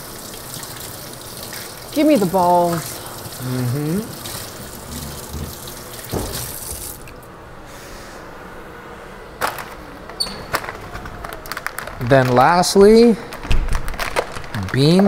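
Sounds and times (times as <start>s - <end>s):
tap running into sink: 4.2s - 7.2s.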